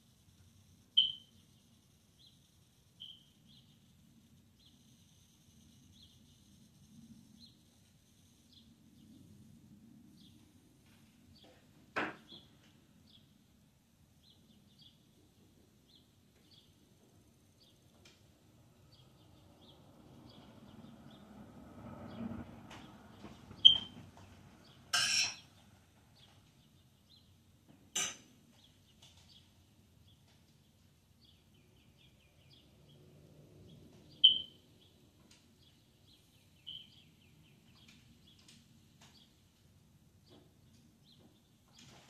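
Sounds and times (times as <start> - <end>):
small birds chirping: 0.0 - 21.3, 22.1 - 42.0
passing car rumble: 18.6 - 24.9, 32.4 - 34.8.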